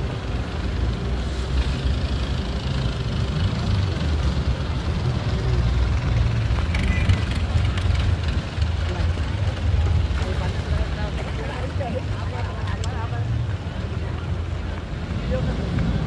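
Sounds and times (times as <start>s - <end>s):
motorboat engine rumbling: 0.0s - 16.0s.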